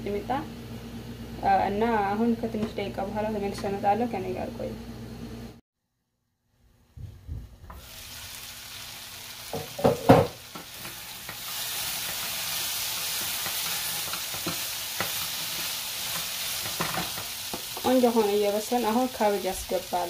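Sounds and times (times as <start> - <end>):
vegetables sizzling in a pan: 7.7 - 20.0
spatula knocking on pan: 9.5 - 10.4
spatula stirring: 10.5 - 18.3.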